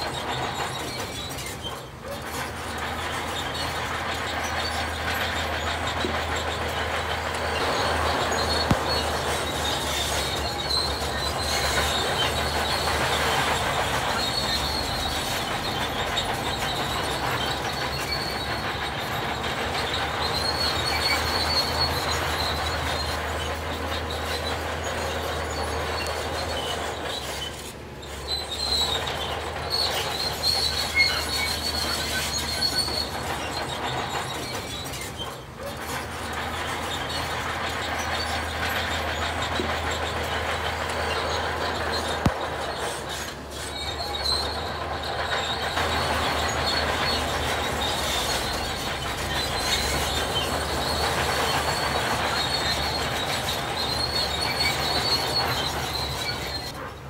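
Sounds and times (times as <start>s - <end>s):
diesel machinery drone: 0.0s - 57.0s
high-pitched metallic squeal: 0.0s - 57.0s.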